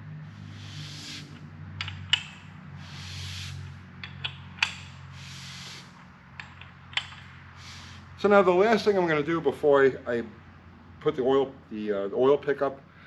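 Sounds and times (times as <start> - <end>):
soft rushing noise: 0.0 - 9.8
wrench metal clicks: 1.8 - 2.4, 6.4 - 7.3.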